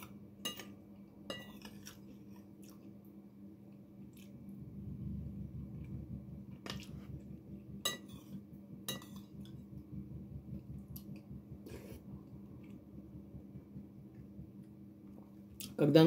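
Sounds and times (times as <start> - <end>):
steady low hum: 0.0 - 16.0
cutlery clinking on a dish: 0.4 - 1.8.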